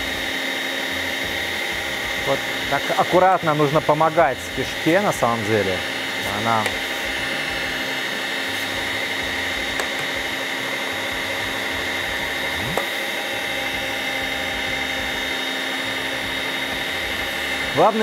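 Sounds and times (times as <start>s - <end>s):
meat grinder motor whining: 0.0s - 18.0s.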